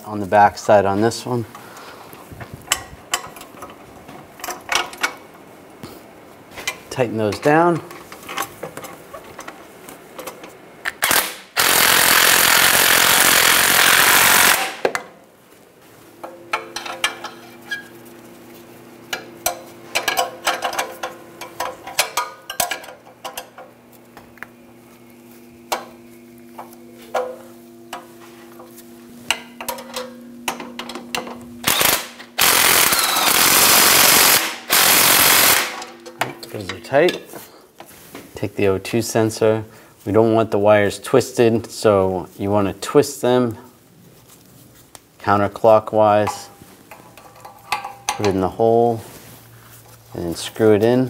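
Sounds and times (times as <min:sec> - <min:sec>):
impact wrench hammering: 0:11.0 - 0:15.0, 0:29.3 - 0:36.5.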